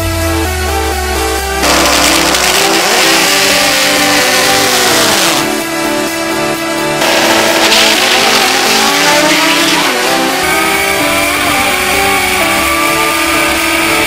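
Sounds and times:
drag car engine revving: 1.6s - 5.7s, 6.9s - 14.0s.

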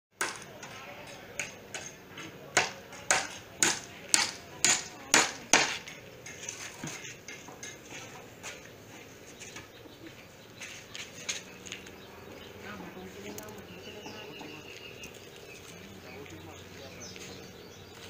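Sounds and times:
hammer strikes: 0.2s - 7.8s.

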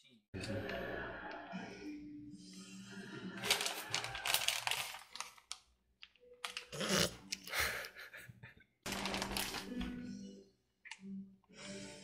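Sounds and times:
cheese rustling: 3.4s - 5.7s, 8.9s - 10.0s
plastic bag crinkling: 3.4s - 5.7s, 6.4s - 7.0s, 8.9s - 9.9s.

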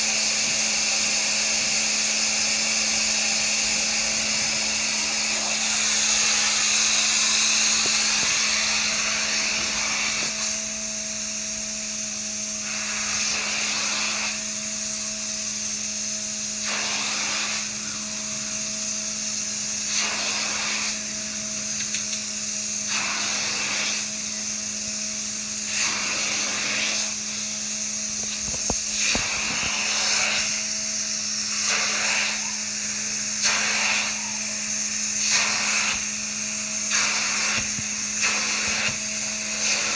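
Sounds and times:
cleaning machine hum and hiss: 0.0s - 39.9s
suction strokes on fabric: 1.6s - 10.6s, 12.6s - 14.5s, 16.6s - 17.8s, 19.8s - 21.0s, 22.8s - 24.4s, 25.6s - 39.9s.

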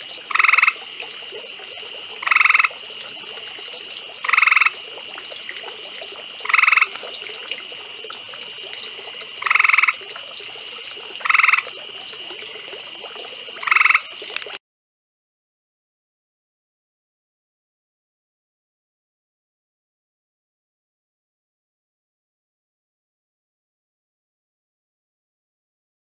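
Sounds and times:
treefrog trilling: 0.0s - 0.9s, 2.2s - 2.8s, 4.2s - 4.8s, 6.4s - 7.1s, 9.4s - 10.0s, 11.2s - 11.8s, 13.6s - 14.2s.

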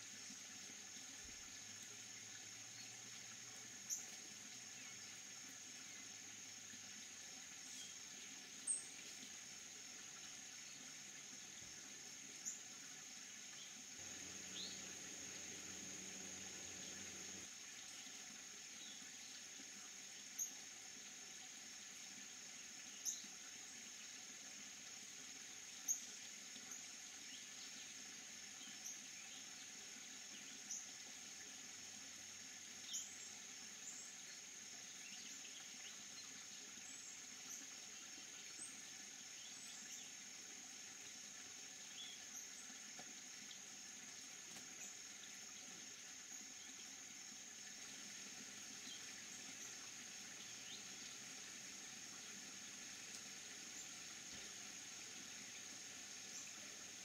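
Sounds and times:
high-pitched insect chorus: 0.1s - 24.1s.

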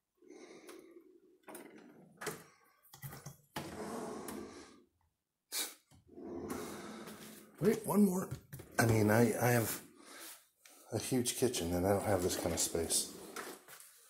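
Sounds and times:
drawers sliding open and shut: 3.1s - 4.6s, 6.1s - 7.7s, 11.9s - 13.8s.

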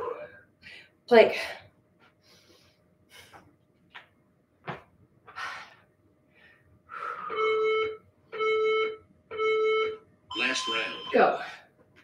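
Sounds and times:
person breathing: 5.3s - 7.6s
electronic timer beeps: 7.3s - 11.3s.

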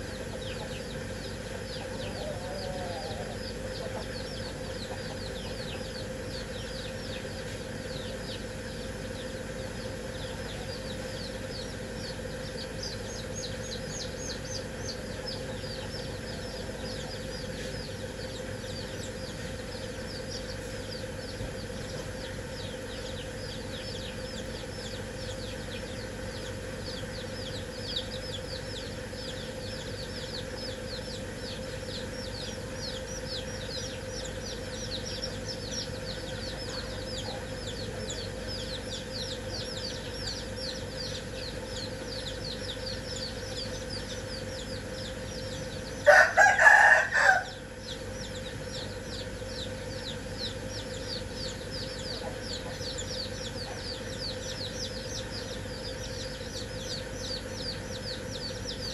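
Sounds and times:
chicks peeping: 0.0s - 58.9s
rooster crowing: 1.9s - 3.5s, 46.0s - 47.8s.

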